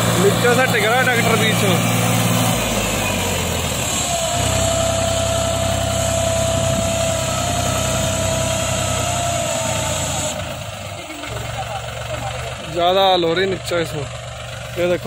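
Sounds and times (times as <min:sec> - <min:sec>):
tractor diesel engine under load: 0:00.0 - 0:15.0.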